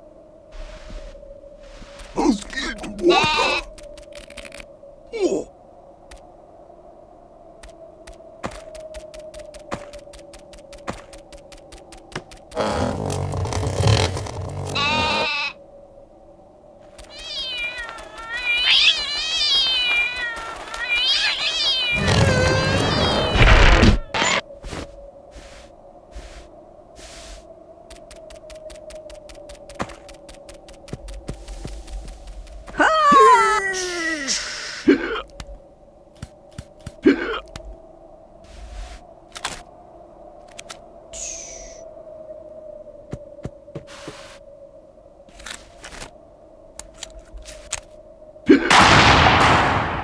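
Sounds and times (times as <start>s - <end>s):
cartoon meow-like cries: 2.9s - 3.7s, 14.7s - 15.6s, 17.0s - 24.2s.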